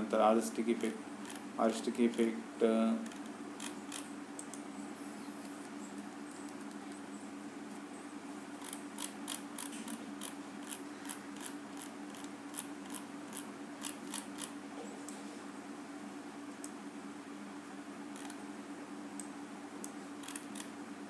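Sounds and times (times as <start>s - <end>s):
mouse scroll wheel clicking: 8.6s - 10.8s, 11.4s - 14.5s, 18.2s - 18.4s, 20.2s - 20.7s.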